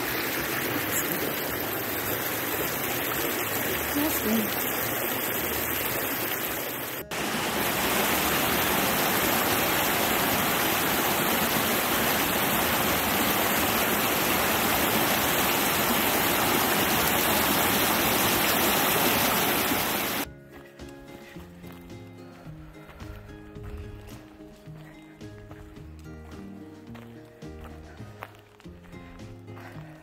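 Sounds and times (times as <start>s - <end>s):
stream rushing over rocks: 0.0s - 20.3s.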